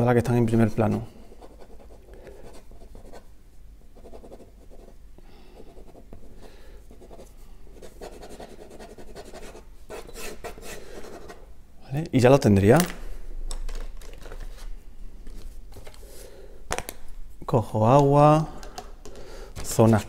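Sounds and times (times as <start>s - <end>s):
pen scratching on paper: 4.0s - 4.9s, 6.9s - 11.4s.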